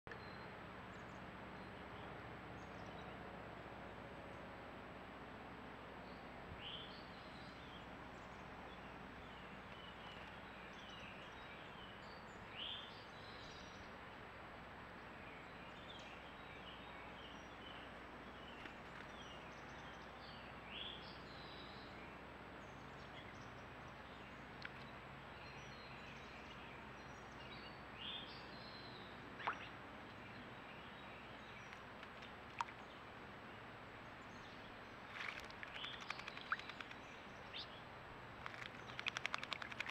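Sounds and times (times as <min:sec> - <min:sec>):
steady outdoor hiss: 0:00.1 - 0:39.9
faint birds chirping: 0:14.9 - 0:39.9
bird splashing in water: 0:35.0 - 0:37.0, 0:38.4 - 0:39.9
sharp clicks: 0:38.4 - 0:39.9.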